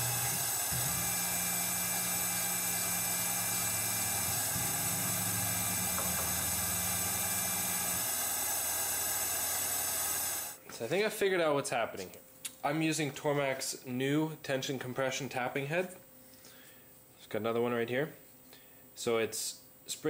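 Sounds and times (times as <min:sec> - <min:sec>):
milling machine spindle whine: 0:00.0 - 0:10.6.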